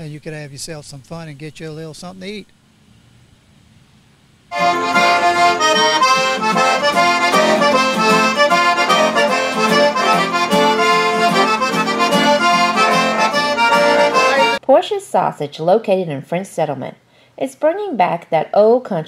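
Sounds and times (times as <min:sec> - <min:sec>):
accordion traditional music: 0:04.5 - 0:14.6.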